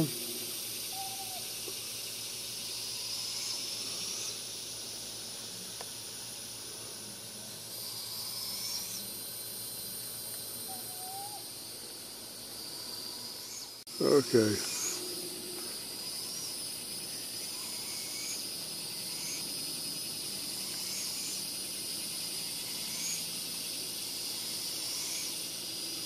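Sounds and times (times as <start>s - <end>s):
thin high-pitched call: 0.0s - 1.6s, 10.6s - 11.5s
outdoor hiss of woods: 0.0s - 26.0s.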